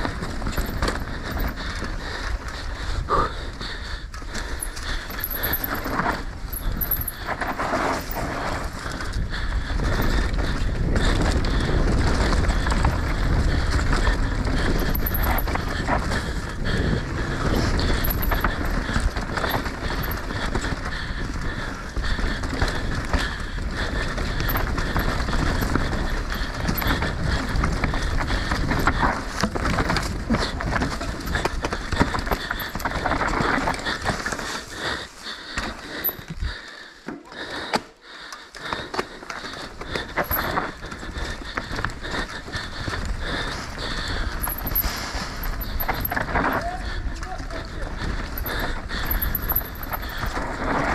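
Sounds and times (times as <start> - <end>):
wind rumble on microphone: 0.0 - 33.6
bike tyres rolling over dirt: 0.0 - 37.0, 37.6 - 50.9
bike rattling over bumps: 0.0 - 50.9.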